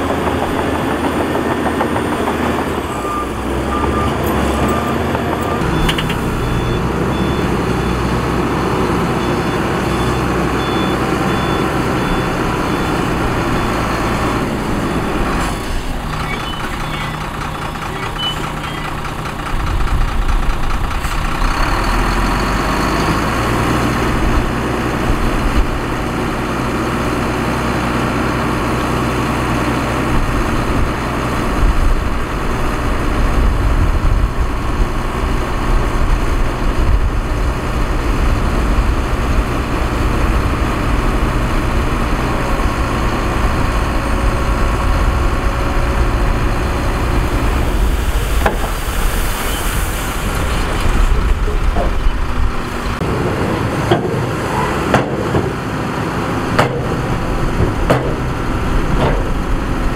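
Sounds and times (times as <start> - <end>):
heavy diesel engines running: 0.0 - 59.9
reversing alarm beeping: 2.3 - 19.0.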